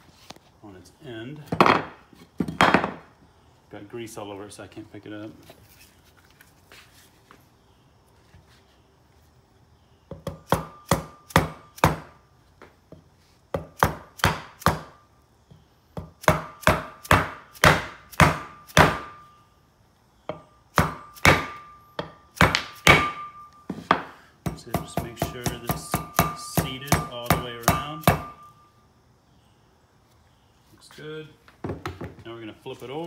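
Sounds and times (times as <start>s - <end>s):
hammer knocking on wooden block: 23.9s - 28.5s.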